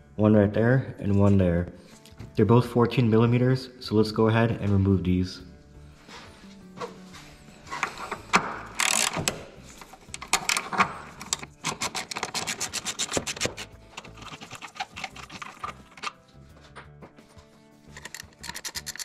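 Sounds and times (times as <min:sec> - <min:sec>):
metal knocks and scrapes: 0:07.6 - 0:16.9
ratchet clicking: 0:08.7 - 0:09.4, 0:10.1 - 0:16.2, 0:17.9 - 0:19.0.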